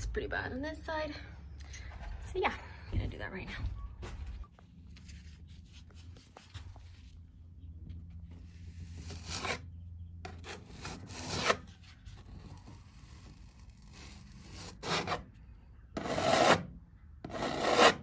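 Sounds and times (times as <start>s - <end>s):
putty knife scraping filler: 8.9s - 9.7s, 10.3s - 11.8s, 12.6s - 15.3s, 16.0s - 16.7s, 17.3s - 18.0s.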